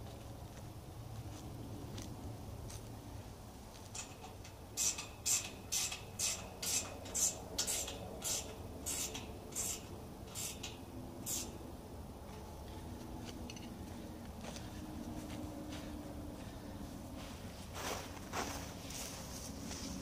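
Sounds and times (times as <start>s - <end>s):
ratchet wrench ratcheting: 4.0s - 11.5s.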